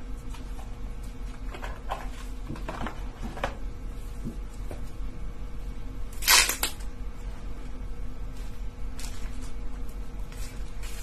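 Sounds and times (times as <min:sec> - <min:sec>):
plastic packaging crinkling: 0:06.2 - 0:06.9.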